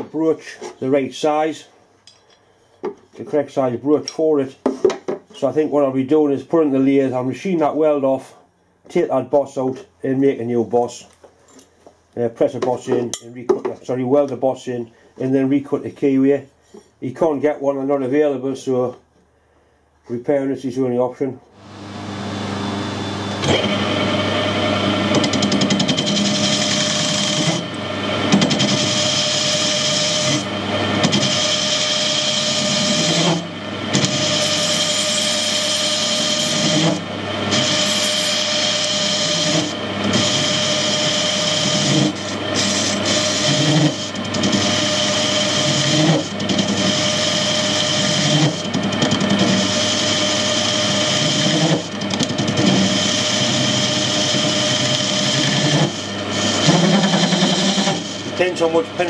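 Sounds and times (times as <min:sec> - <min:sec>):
lathe motor hum: 0:21.6 - 0:59.0
lathe tool scraping metal: 0:21.6 - 0:59.0.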